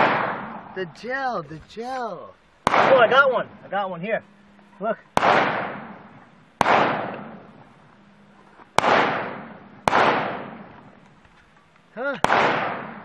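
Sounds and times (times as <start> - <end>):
gunshots with echo: 0.0 - 0.7, 2.6 - 3.2, 5.2 - 7.4, 8.8 - 10.7, 12.2 - 13.0.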